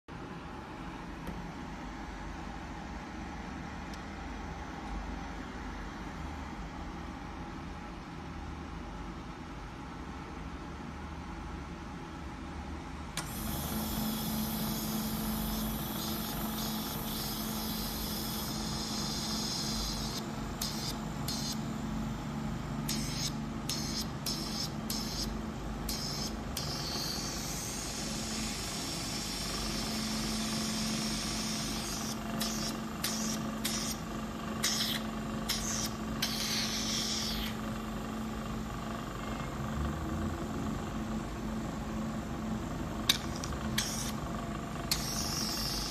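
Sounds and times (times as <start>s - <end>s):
compressor humming: 12.0s - 45.9s
hissing spray jet: 34.6s - 37.6s, 43.1s - 44.2s.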